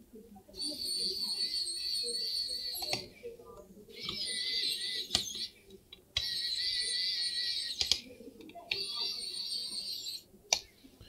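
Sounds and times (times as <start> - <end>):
sharp clicks: 7.8 - 8.1.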